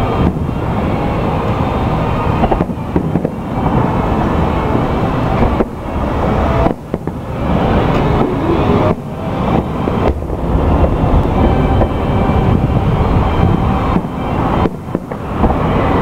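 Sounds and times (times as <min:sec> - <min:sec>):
firework bursts and booms: 0:00.0 - 0:16.0.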